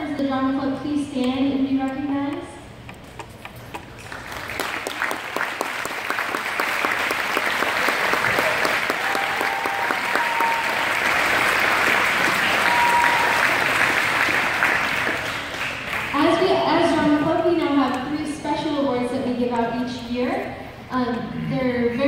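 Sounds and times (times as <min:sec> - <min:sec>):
audience clapping: 0:03.8 - 0:16.3.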